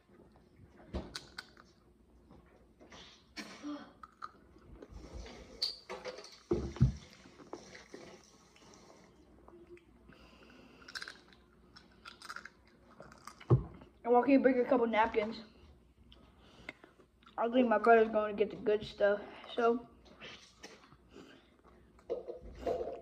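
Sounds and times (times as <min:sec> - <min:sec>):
chewing chips: 0:04.0 - 0:04.9, 0:10.6 - 0:13.5.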